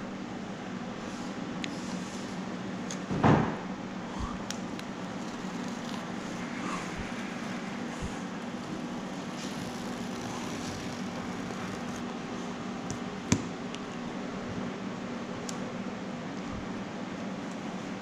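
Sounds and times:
ventilation fan humming: 0:00.0 - 0:18.0.

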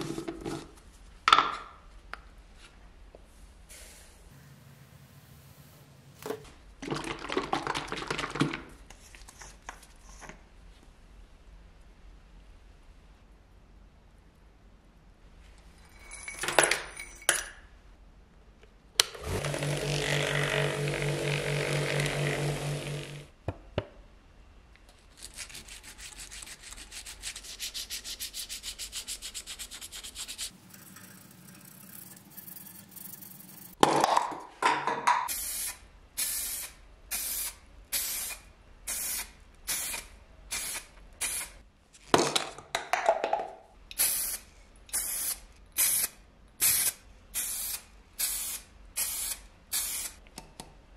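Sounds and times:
vibratory tumbler buzzing: 0:19.2 - 0:23.3
spray-paint can hissing: 0:35.3 - 0:41.6, 0:44.0 - 0:50.2.

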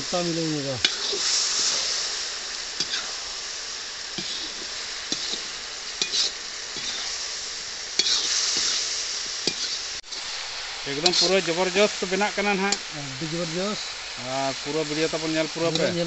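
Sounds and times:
chicken sizzling in a pan: 0:00.0 - 0:16.0
metal ladle scraping a pan: 0:00.8 - 0:02.0, 0:02.7 - 0:03.2, 0:04.1 - 0:07.3, 0:07.9 - 0:10.3, 0:11.0 - 0:11.3.

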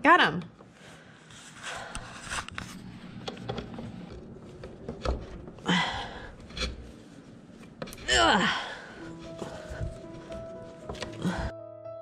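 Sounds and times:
cable clicking and rustling: 0:01.7 - 0:05.7, 0:06.3 - 0:08.1, 0:09.0 - 0:11.5.

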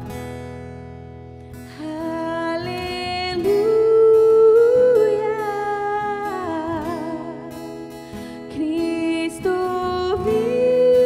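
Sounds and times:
acoustic guitar: 0:00.0 - 0:11.0
woman singing long notes: 0:01.8 - 0:07.5, 0:08.6 - 0:11.0.

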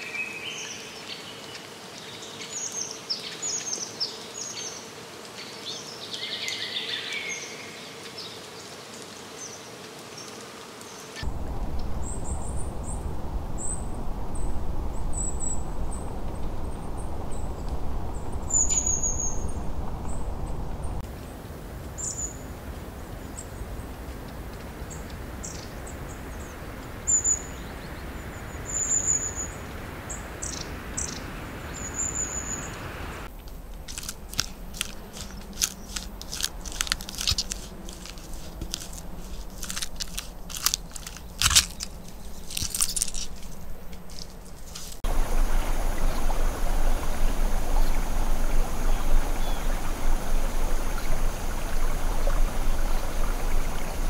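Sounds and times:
steady low rumble: 0:11.2 - 0:54.0
squirrel chewing: 0:33.3 - 0:45.0.

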